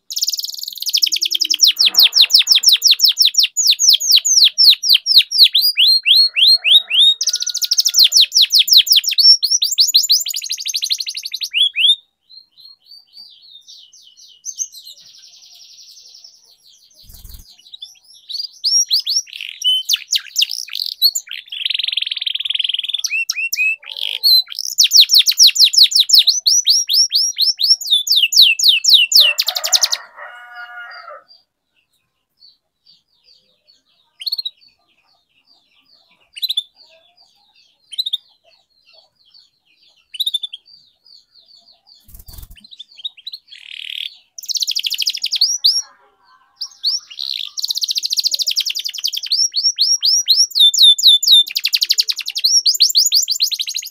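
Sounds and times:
canary singing rapid trills: 0.0 - 53.9.

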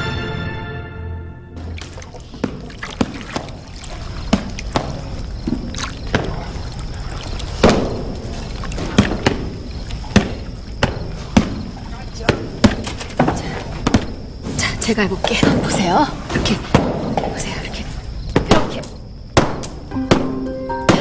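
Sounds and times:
water sloshing in a pot: 1.6 - 18.2
knocks and thuds: 8.8 - 14.2.

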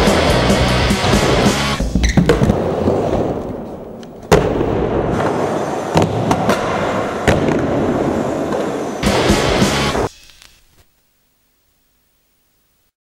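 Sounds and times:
skateboard wheels rolling on concrete: 0.0 - 10.1.

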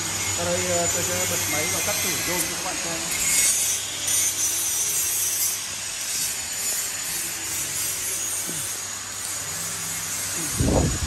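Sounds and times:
rasping hiss of machine: 4.4 - 11.0.

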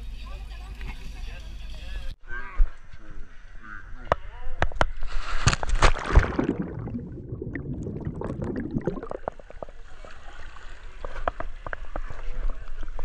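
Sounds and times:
people splashing into the sea: 5.0 - 11.9
water splashing and lapping: 5.0 - 13.0
muffled underwater gurgling: 6.2 - 10.4.

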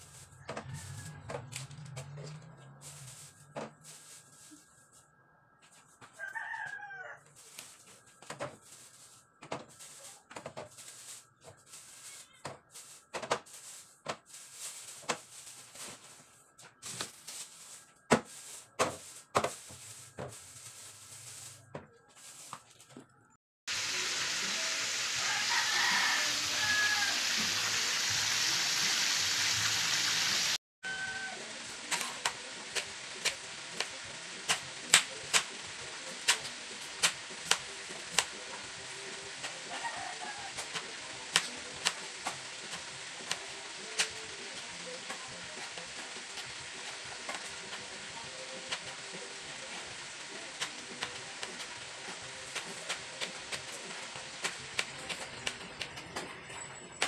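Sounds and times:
plastic bag rustling: 2.7 - 5.1, 7.3 - 23.1
oil sizzling: 23.7 - 56.0.

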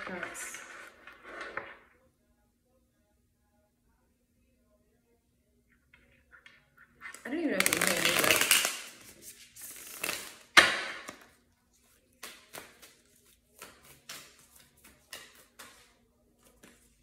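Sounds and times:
cards shuffling: 7.0 - 10.5
cards slapping: 7.1 - 11.3, 12.1 - 16.9.

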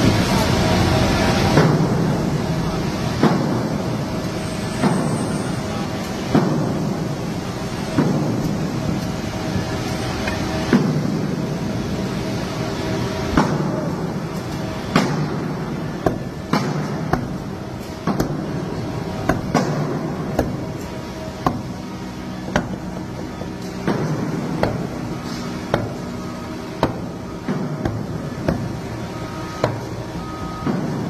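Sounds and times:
hammer blows on wooden barrel: 21.4 - 31.0.

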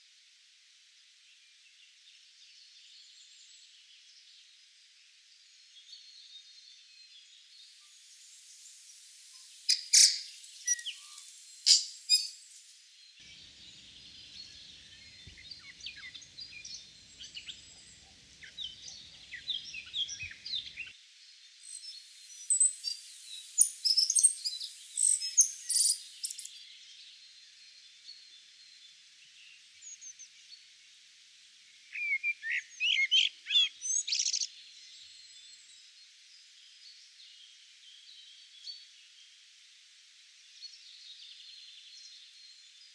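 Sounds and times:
faint steady high hiss: 0.0 - 42.9
bird singing: 5.5 - 21.0, 21.6 - 28.8, 31.9 - 35.9.

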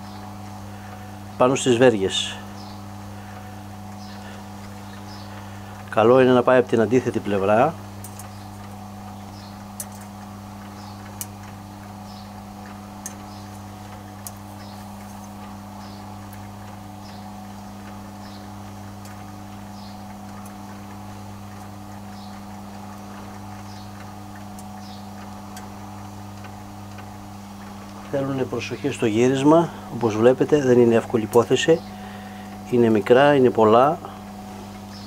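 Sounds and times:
rotisserie motor humming: 0.0 - 35.0
metal tongs clicking on grill: 8.0 - 8.8, 9.7 - 10.2, 10.8 - 11.5, 13.0 - 14.4
faint regular tick: 8.0 - 15.6, 19.0 - 28.2.

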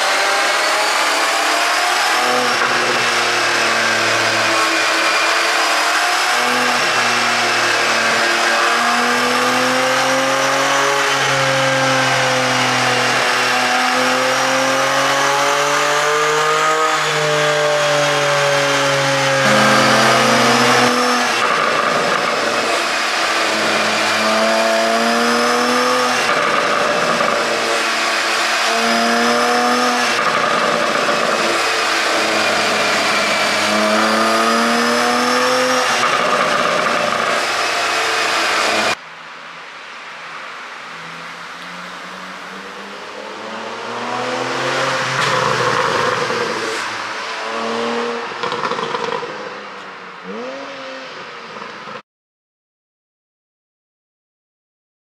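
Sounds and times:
car engine revving: 0.0 - 39.0, 40.2 - 52.0
exhaust popping: 48.4 - 49.9.

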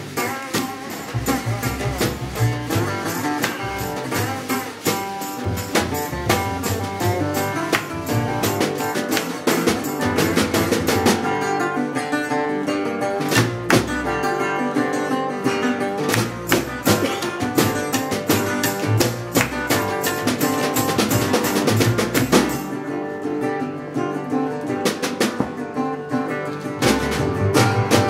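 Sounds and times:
upright bass: 0.0 - 12.1, 13.0 - 22.7, 24.8 - 28.0
acoustic guitar strummed hard: 0.0 - 28.0.

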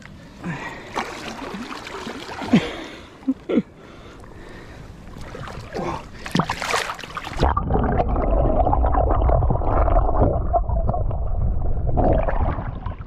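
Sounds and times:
underwater rumble and gurgling water: 4.2 - 13.0.

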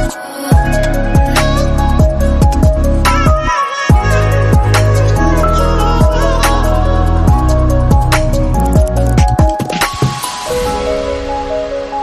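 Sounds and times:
sliding deep bass notes: 0.0 - 9.6.

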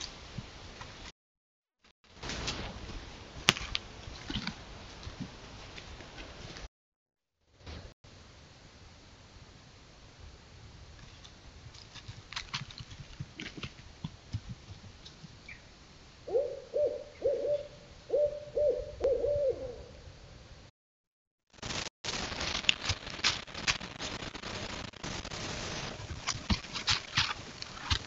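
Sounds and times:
owl hooting: 16.2 - 20.1
rustling in dry leaves: 21.6 - 28.0.

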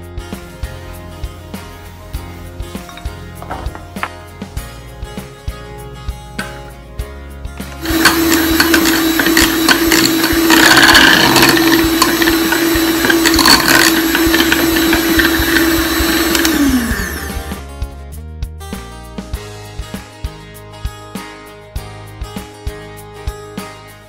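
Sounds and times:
background music: 0.0 - 24.0
electric hand mixer whining: 7.6 - 17.6.

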